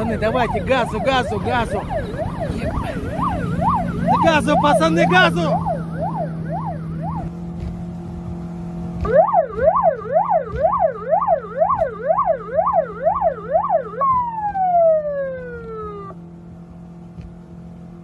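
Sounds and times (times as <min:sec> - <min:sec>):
electronic siren yelping: 0:00.0 - 0:07.4, 0:09.0 - 0:16.2.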